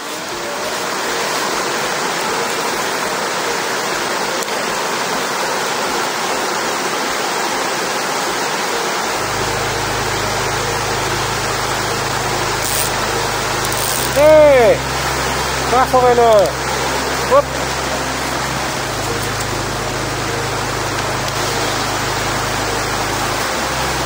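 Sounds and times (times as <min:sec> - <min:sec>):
river rushing over rapids: 0:00.0 - 0:24.0
low steady rumble: 0:09.2 - 0:24.0.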